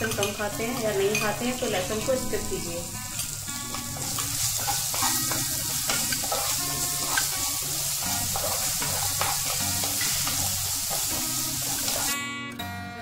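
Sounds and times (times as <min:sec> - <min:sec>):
spices sizzling in hot oil: 0:00.0 - 0:12.2
wooden spatula scraping pan: 0:04.1 - 0:12.1.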